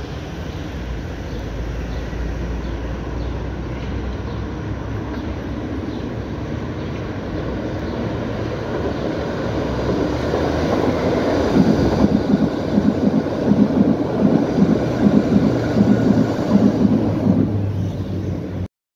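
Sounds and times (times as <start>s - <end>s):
underground train passing: 0.0s - 18.7s
wheels clattering over track: 6.8s - 17.7s.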